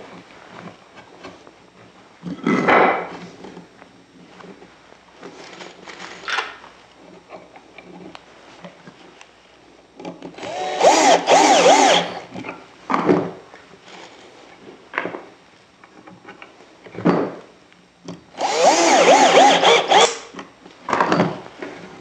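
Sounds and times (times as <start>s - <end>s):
cordless drill driving screw: 10.4s - 12.2s, 18.4s - 20.4s.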